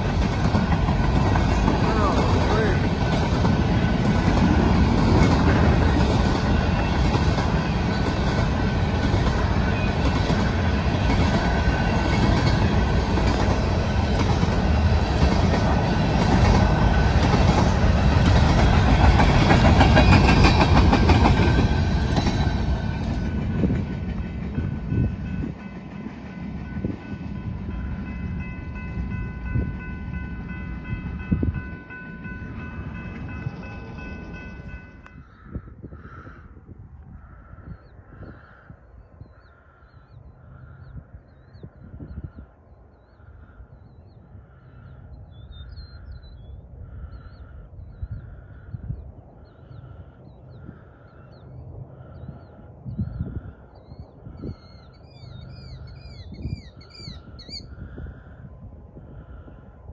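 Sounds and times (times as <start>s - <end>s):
train wheels rumbling over rails: 0.0s - 36.2s.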